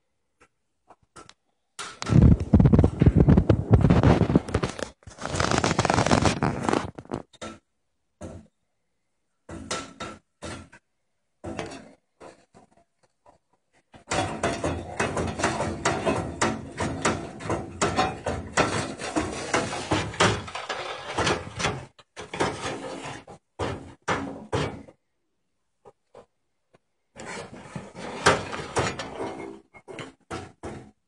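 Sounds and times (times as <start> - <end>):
blind slats clicking and rattling: 14.0 - 24.8.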